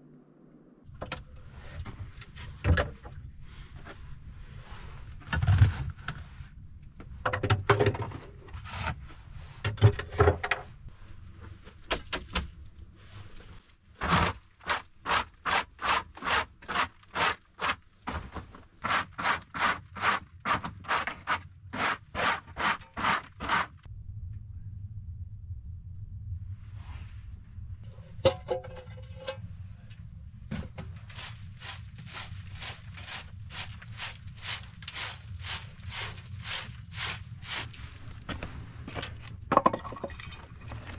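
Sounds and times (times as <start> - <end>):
scraping and knocking objects: 7.0 - 10.7, 13.0 - 23.9, 27.8 - 40.9
hand brush sweeping a bench: 31.1 - 38.8.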